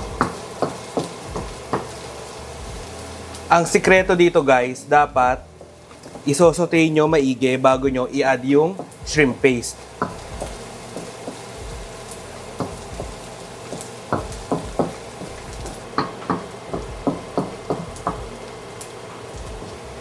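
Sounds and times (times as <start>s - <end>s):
aromatics sizzling in oil: 0.0s - 20.0s
wooden spoon scraping a wok: 5.5s - 6.4s.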